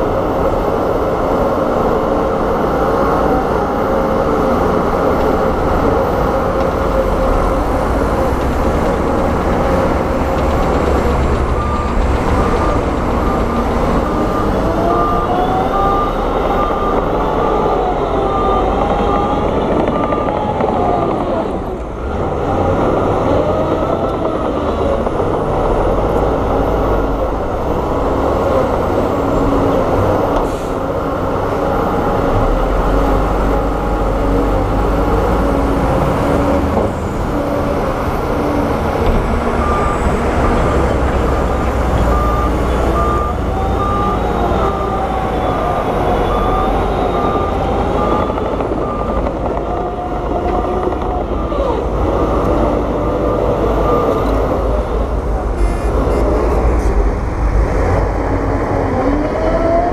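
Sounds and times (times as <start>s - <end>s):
heavy diesel machinery running: 0.0s - 59.9s
repeated beep: 10.9s - 17.1s, 39.6s - 49.4s.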